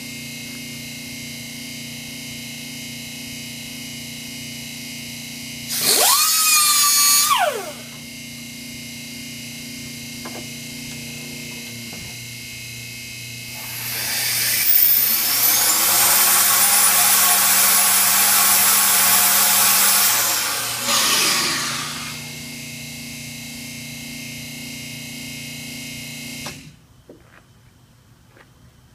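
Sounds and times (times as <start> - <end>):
pneumatic grinder spinning: 5.7 - 8.1, 13.4 - 22.5.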